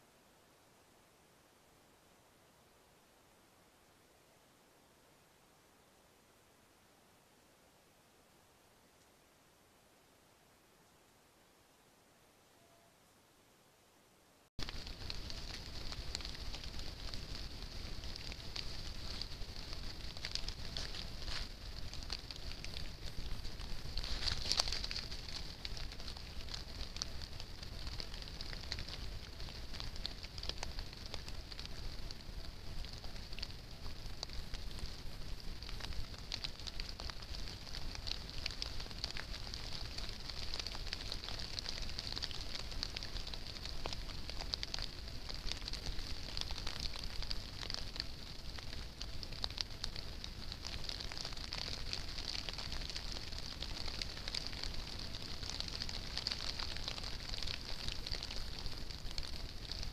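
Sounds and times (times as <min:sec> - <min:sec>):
steady microphone hiss: 0:00.0 - 0:59.9
low rumble: 0:14.6 - 0:56.1
faint crackling ticks: 0:14.6 - 0:59.9.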